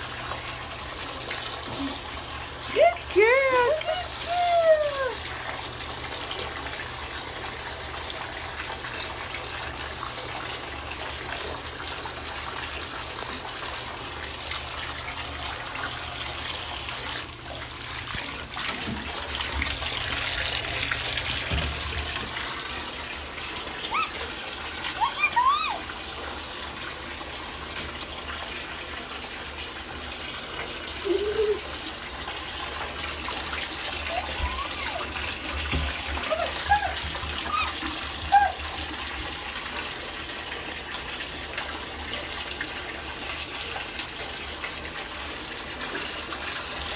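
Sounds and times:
water running from bathtub tap: 0:00.0 - 0:46.9
short high cries: 0:24.9 - 0:25.9.

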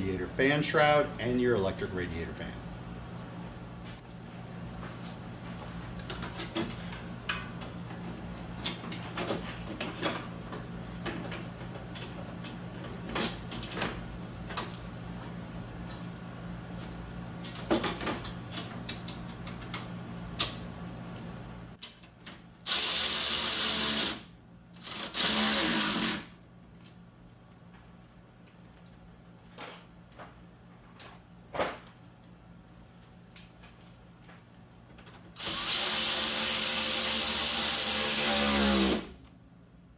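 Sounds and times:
cordless drill running: 0:22.7 - 0:24.2, 0:24.9 - 0:26.2, 0:35.4 - 0:39.1.

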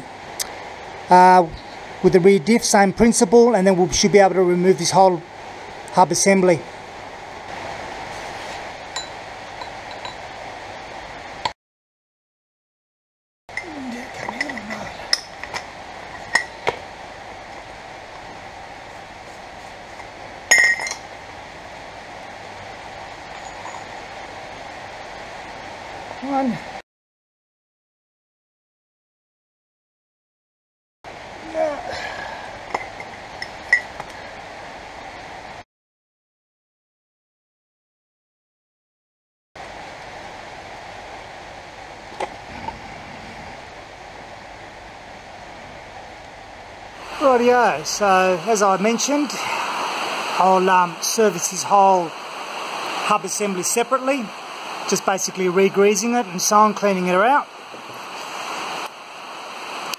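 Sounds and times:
steady hiss: 0:00.0 - 0:11.5, 0:13.5 - 0:26.8, 0:31.1 - 0:35.6, 0:39.6 - 0:59.9
metallic clink: 0:09.0 - 0:10.2, 0:20.5 - 0:21.0.

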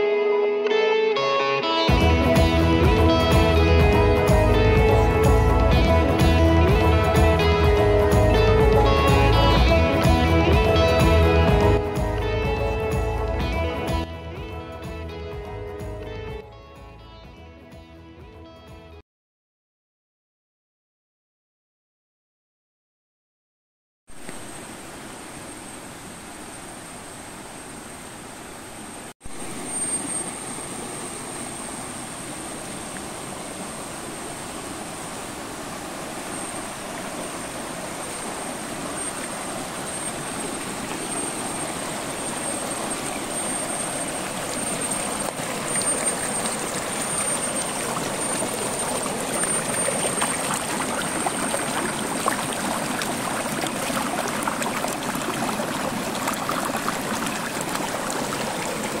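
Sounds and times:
river rushing over stones: 0:24.2 - 0:59.0.

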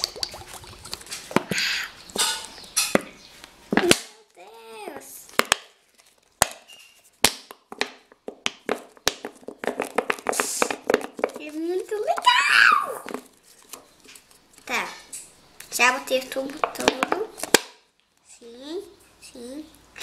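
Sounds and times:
glue squirting hiss: 0:10.3 - 0:10.8.

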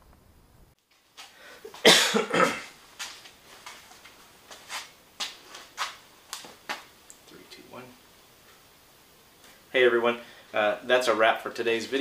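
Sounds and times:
footsteps on concrete floor: 0:02.6 - 0:06.9.

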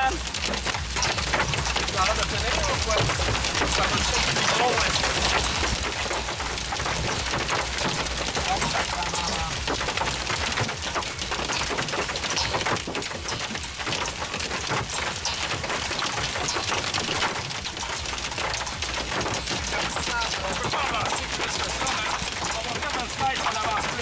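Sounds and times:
rain and hail drumming on car roof: 0:00.0 - 0:24.0.

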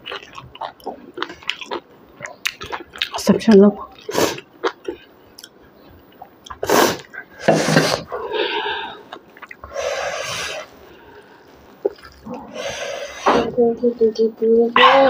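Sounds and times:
person sniffing and breathing sharply: 0:06.6 - 0:09.1, 0:09.7 - 0:11.5, 0:12.5 - 0:13.5.

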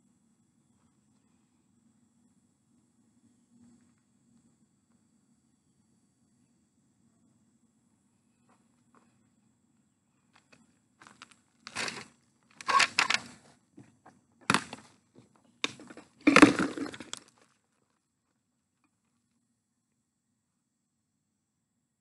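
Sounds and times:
footsteps crunching on dry soil: 0:10.4 - 0:12.1.

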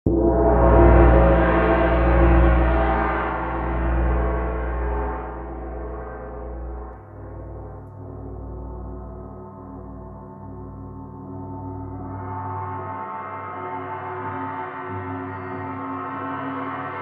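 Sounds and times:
gong ringing: 0:00.1 - 0:09.2.

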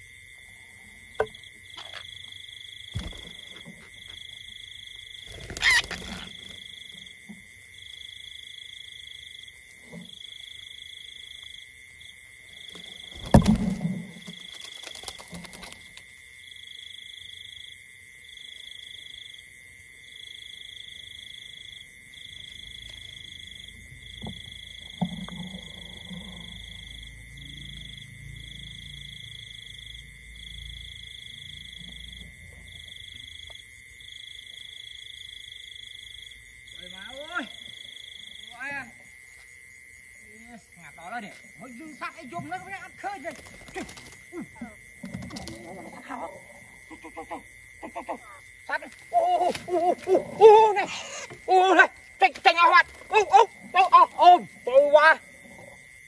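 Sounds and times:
rustles: 0:05.1 - 0:07.5, 0:12.5 - 0:16.4, 0:41.2 - 0:54.7.

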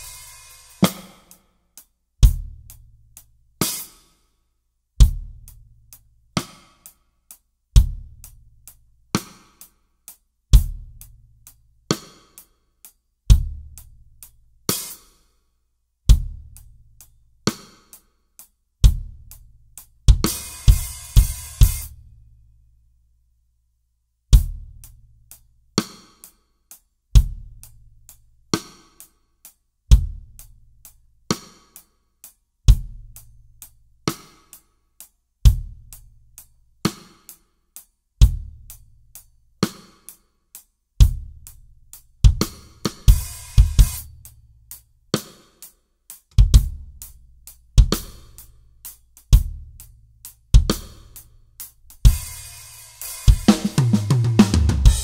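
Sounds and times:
snare drum hits: 0:53.3 - 0:55.0
bass drum boom: 0:53.7 - 0:55.0.

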